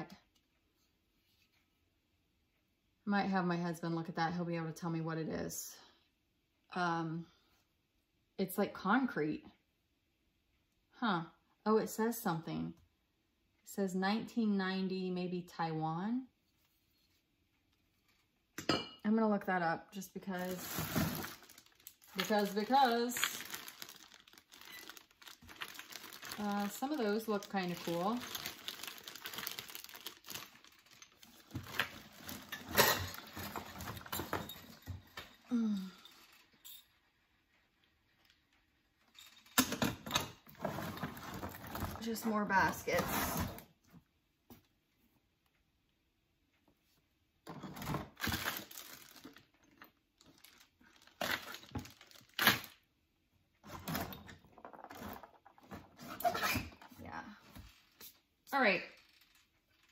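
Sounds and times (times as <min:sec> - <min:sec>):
plastic bag rustling: 0:20.3 - 0:35.0, 0:48.2 - 0:52.7
knocks and clatters of decorations: 0:20.3 - 0:44.7, 0:53.6 - 0:59.9.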